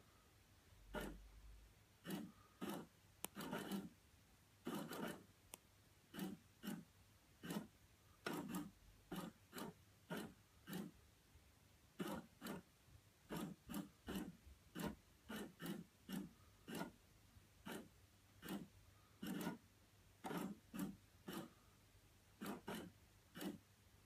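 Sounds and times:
toy motor noisy bursts: 2.0s - 3.9s, 4.6s - 5.2s, 7.4s - 10.9s, 12.0s - 12.6s, 13.3s - 17.0s, 22.4s - 23.6s.

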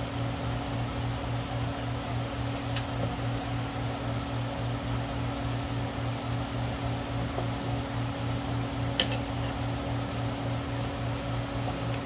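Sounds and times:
pulsing fan hum: 0.0s - 12.0s.

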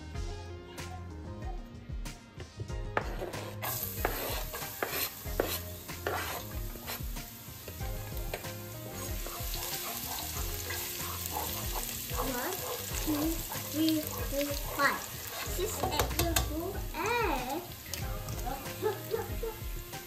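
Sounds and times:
knife tapping and scraping board: 3.0s - 7.0s
garlic sizzling in hot oil: 3.0s - 20.0s
stirring in pan: 3.0s - 20.0s.

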